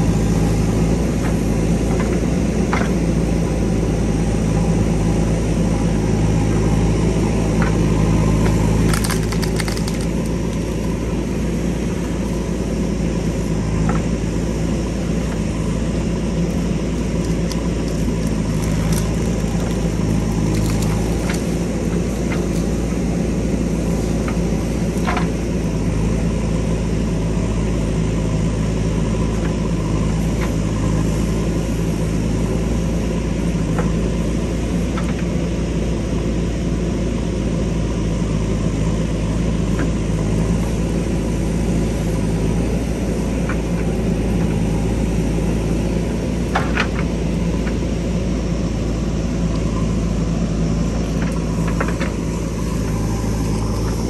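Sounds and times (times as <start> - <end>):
diesel engine running: 0.0 - 54.0
bucket clicking and cracking in soil: 8.4 - 11.0, 17.0 - 23.0.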